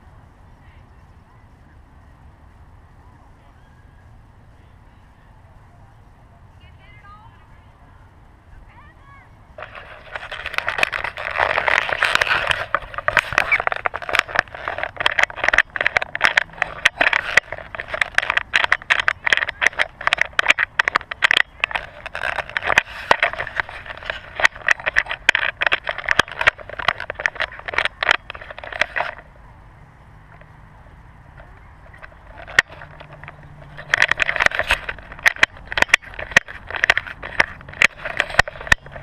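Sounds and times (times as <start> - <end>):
hands rubbing over camera housing: 9.6 - 29.2, 31.4 - 39.0
sharp clicks and knocks: 9.6 - 29.3, 30.3 - 39.0.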